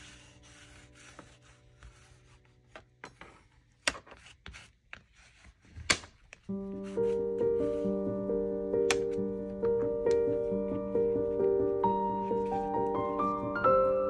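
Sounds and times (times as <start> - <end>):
faint background music: 0.0 - 5.5
paper rubbing and rustling: 0.0 - 8.0.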